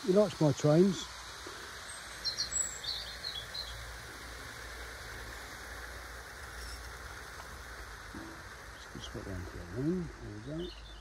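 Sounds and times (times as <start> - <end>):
robin singing: 0.0 - 4.1, 8.2 - 11.0.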